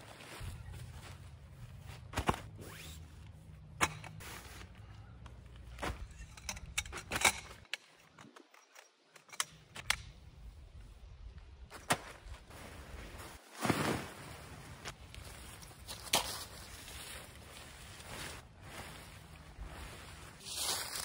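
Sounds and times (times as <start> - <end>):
footsteps in dry leaves: 0.0 - 2.1, 12.5 - 21.0
tarp rustling: 12.1 - 21.0.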